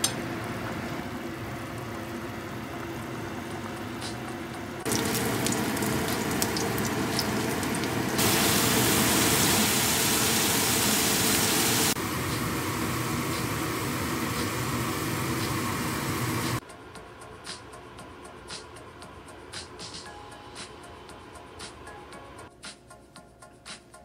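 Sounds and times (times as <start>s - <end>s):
garlic sizzling in hot oil: 4.8s - 16.6s.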